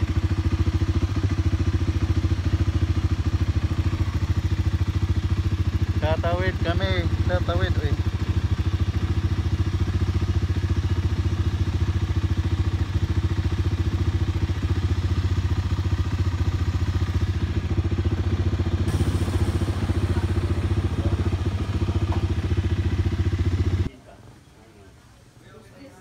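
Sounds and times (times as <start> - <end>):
small engine running: 18.8 - 23.9.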